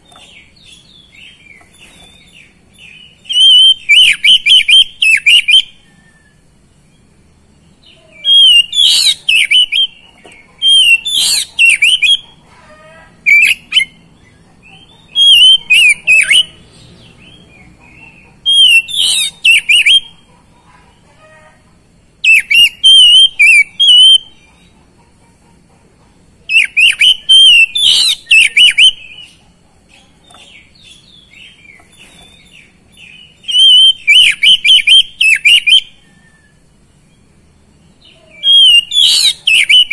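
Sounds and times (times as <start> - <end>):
bird singing whistled phrases: 3.0 - 6.4, 8.2 - 10.0, 10.6 - 12.2, 15.2 - 16.6, 18.5 - 20.1, 22.2 - 24.3, 26.5 - 29.3, 33.0 - 36.6, 38.3 - 39.9.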